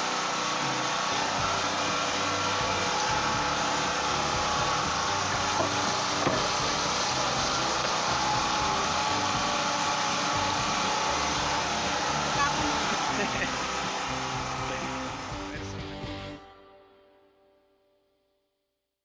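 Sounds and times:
fish and onions sizzling: 0:00.0 - 0:15.6.

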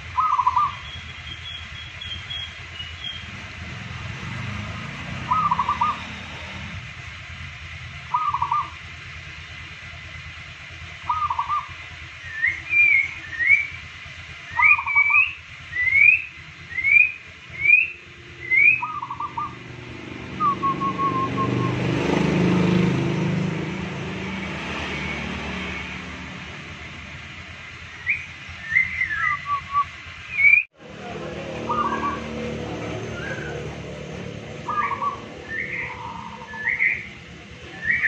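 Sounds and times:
bird chirping: 0:00.0 - 0:03.5, 0:04.3 - 0:06.7, 0:08.1 - 0:08.8, 0:11.0 - 0:13.8, 0:14.4 - 0:22.0, 0:27.8 - 0:30.6, 0:31.5 - 0:38.0.

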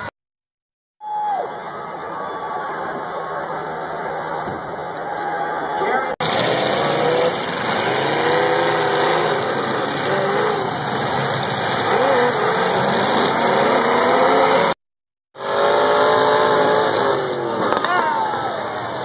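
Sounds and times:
car engines revving hard: 0:06.2 - 0:14.8, 0:15.4 - 0:19.0.

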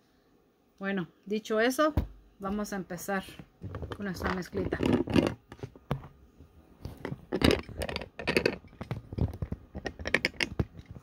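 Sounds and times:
phone handling knocks and scrapes: 0:03.3 - 0:06.2, 0:06.8 - 0:11.0.

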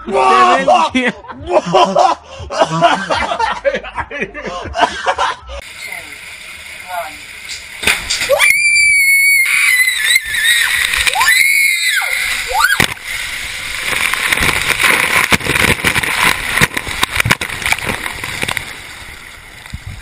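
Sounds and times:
water splashing and sloshing: 0:10.2 - 0:20.0.

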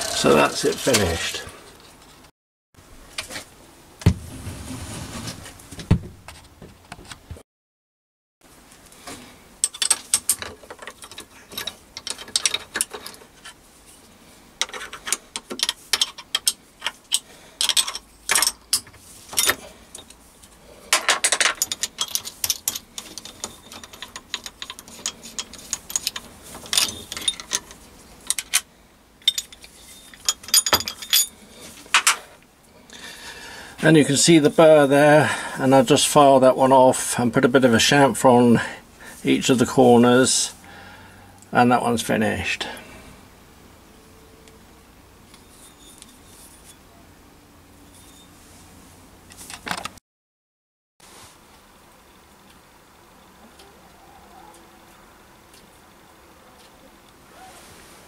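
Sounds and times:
metal clinks and clicks: 0:20.9 - 0:31.4.

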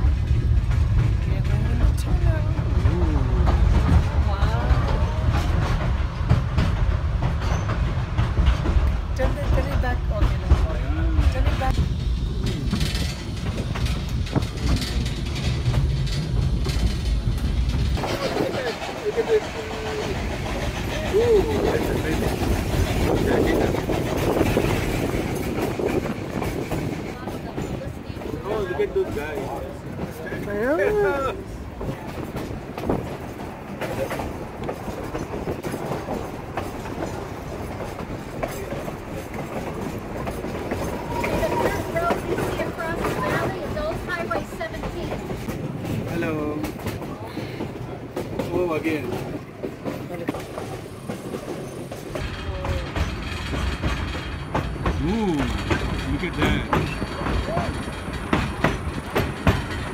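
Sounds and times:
train car rumbling: 0:00.0 - 0:59.9
wheel clicks over rail joints: 0:12.4 - 0:20.9, 0:31.8 - 0:59.9.

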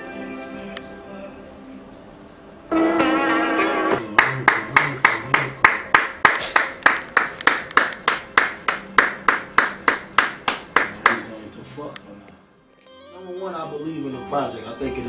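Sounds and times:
sharp hand claps: 0:04.0 - 0:11.3.

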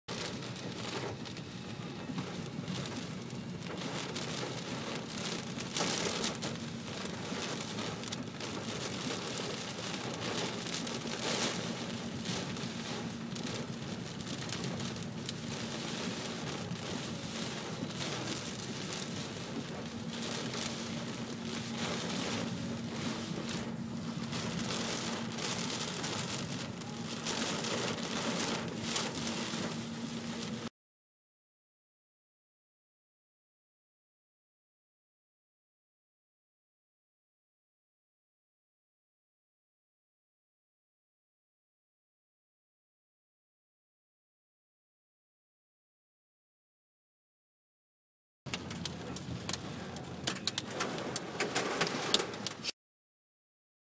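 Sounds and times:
heavy rain on car roof: 0:00.1 - 0:30.7, 0:48.5 - 0:52.8.

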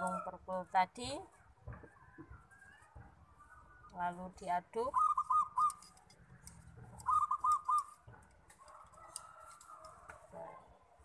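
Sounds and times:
dove cooing: 0:04.9 - 0:06.0, 0:06.7 - 0:09.9.

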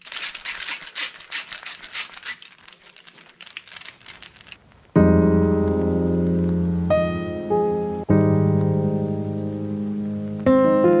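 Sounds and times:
hand ratchet clicking: 0:00.0 - 0:02.6
piano music: 0:04.9 - 0:11.0.

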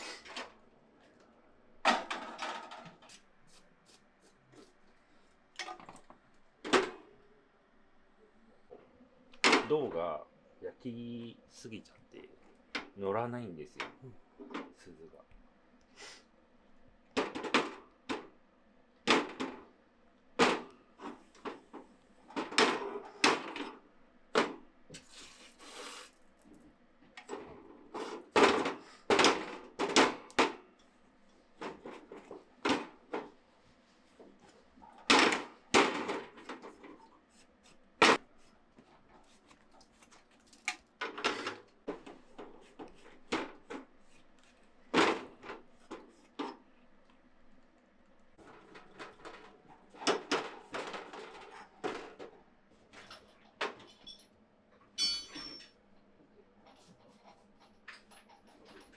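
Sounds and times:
brief hiss: 0:25.0 - 0:26.2
metal tools clinking and scraping: 0:53.1 - 0:54.3, 0:55.0 - 0:55.8.

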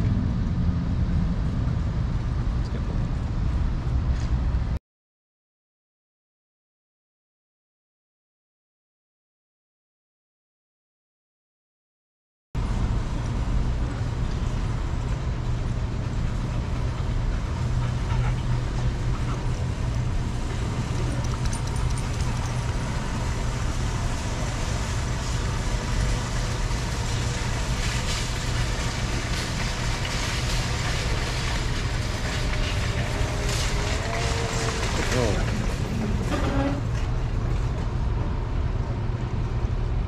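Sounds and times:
low rumble: 0:00.0 - 0:04.8.

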